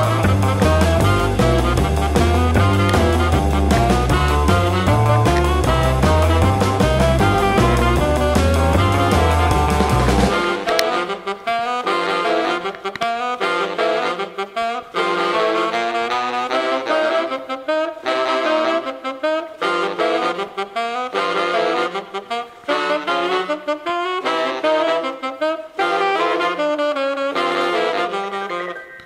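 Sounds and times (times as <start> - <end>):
saxophone jazz melody: 0.0 - 29.0.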